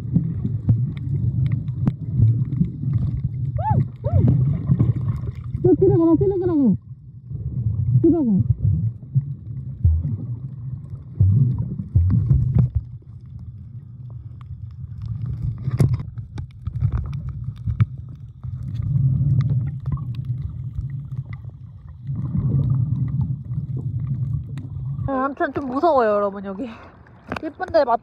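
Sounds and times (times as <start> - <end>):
small clicks and crackles: 0.0 - 5.6, 12.2 - 24.8, 27.0 - 28.0
muffled underwater water rumble: 0.0 - 28.0.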